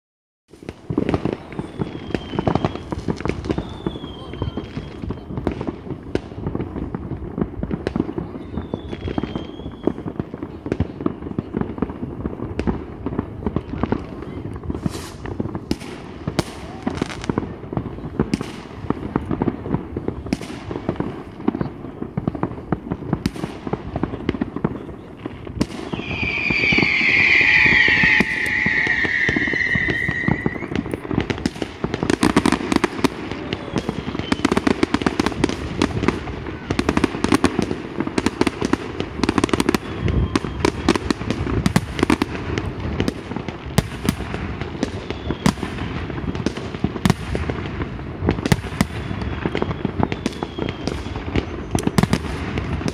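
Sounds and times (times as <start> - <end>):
fireworks bangs and crackles: 0.5 - 52.9
high wavering whistle: 25.9 - 31.0.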